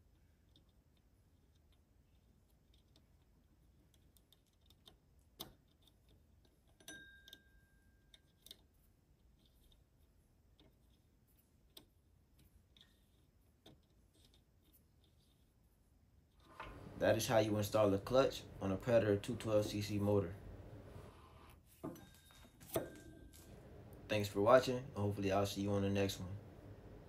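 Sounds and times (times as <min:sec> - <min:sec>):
allen key clicking on metal screws: 0:08.1 - 0:08.8.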